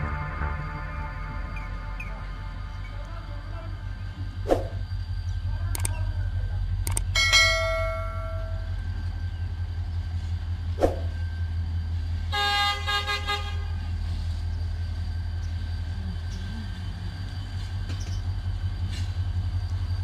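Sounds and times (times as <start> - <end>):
locomotive horn blasts: 0.0 - 3.9, 12.3 - 14.1
steady low rumble: 0.0 - 20.0.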